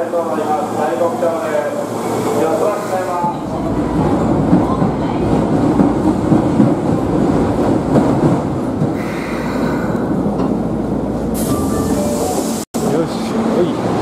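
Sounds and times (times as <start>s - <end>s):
subway train rumbling on rails: 0.0s - 14.0s.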